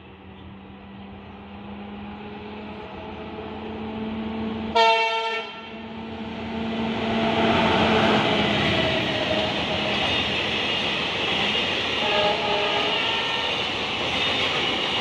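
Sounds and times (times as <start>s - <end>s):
diesel locomotive engine hum: 0.0s - 15.0s
train horn blast: 4.7s - 5.9s, 12.0s - 13.5s.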